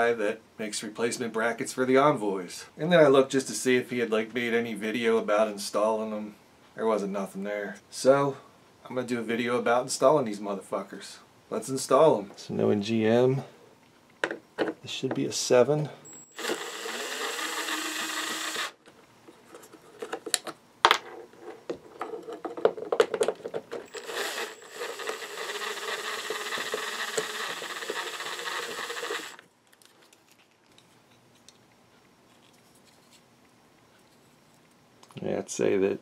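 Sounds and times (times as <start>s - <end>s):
cordless drill whirring: 16.1s - 18.8s, 23.9s - 29.4s.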